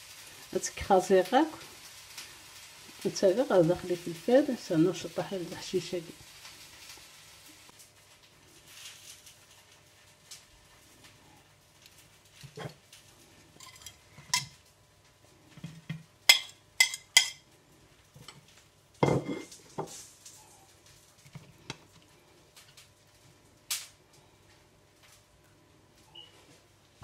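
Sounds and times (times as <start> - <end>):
fork clinking on ceramic plate: 16.3 - 17.4.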